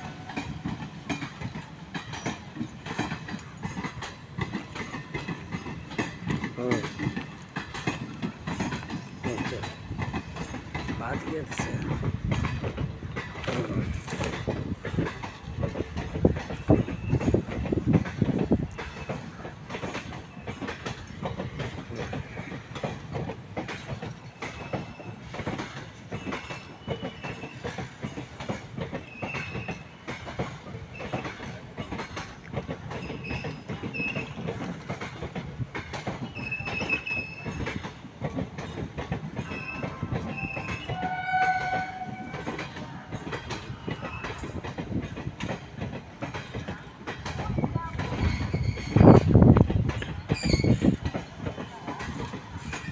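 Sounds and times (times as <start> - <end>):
train wheels clattering over rail joints: 0.0 - 52.9
brief high wheel squeals: 26.2 - 27.7, 48.2 - 49.3, 50.3 - 50.9.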